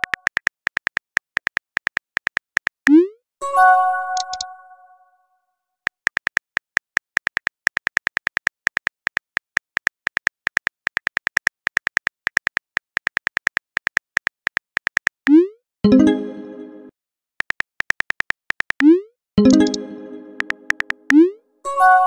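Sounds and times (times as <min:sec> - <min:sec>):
phone keyboard typing clicks: 0:00.0 - 0:03.0, 0:04.2 - 0:04.5, 0:05.9 - 0:15.4, 0:17.4 - 0:21.2.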